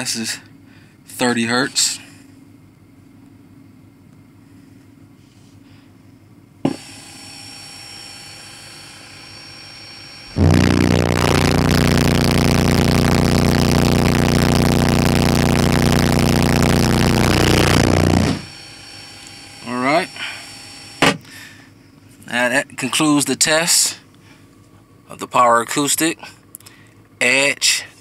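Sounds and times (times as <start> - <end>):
subwoofer test tone: 10.3 - 18.5.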